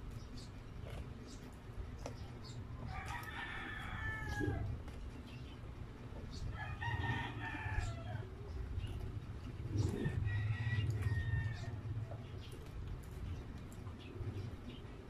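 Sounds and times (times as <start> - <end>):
rooster crowing: 2.9 - 4.7, 6.6 - 8.3, 10.2 - 11.9.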